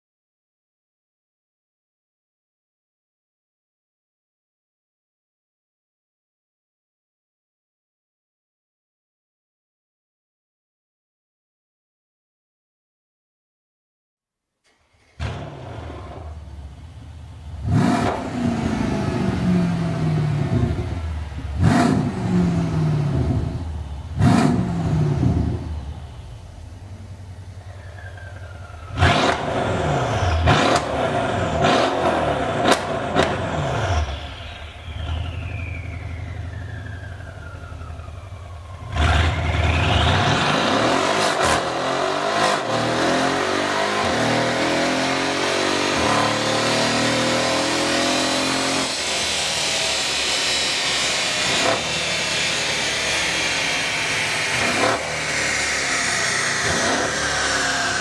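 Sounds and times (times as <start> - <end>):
car engine revving: 14.7 - 58.0
falling engine whine: 14.7 - 58.0.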